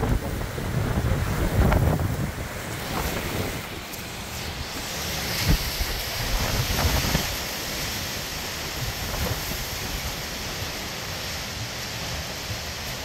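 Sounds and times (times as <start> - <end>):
wind buffeting microphone: 0.0 - 10.7
wind rushing through trees: 0.0 - 13.0.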